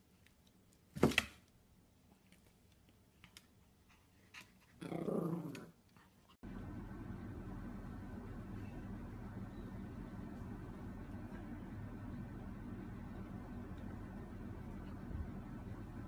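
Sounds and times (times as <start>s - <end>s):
low hum: 6.4s - 16.0s.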